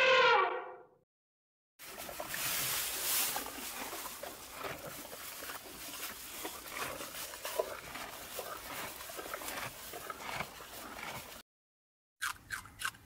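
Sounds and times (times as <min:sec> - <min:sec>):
horse chewing leaves: 0:01.8 - 0:11.4.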